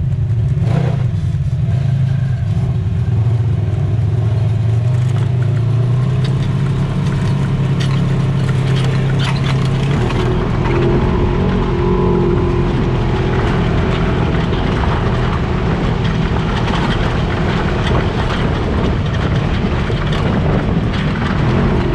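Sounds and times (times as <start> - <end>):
off-road vehicle engine running: 0.0 - 21.9
small rattles: 4.9 - 21.9.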